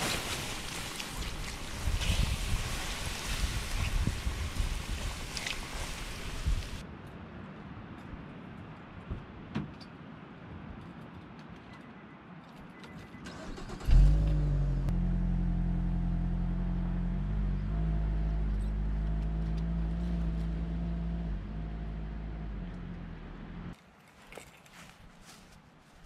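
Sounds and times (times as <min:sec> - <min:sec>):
car engine starting and running: 0:13.3 - 0:23.8.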